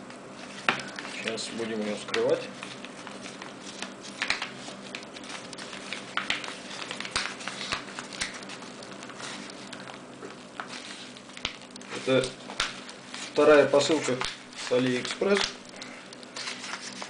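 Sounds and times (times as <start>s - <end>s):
paper mailer tearing: 11.9s - 15.6s.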